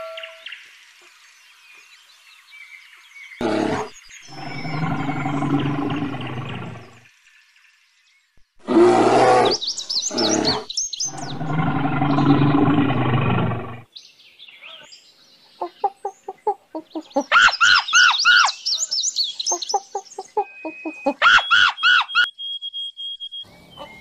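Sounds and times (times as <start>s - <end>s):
long low animal call: 3.4s - 7.0s, 8.6s - 13.8s
high chirps: 19.5s - 24.0s.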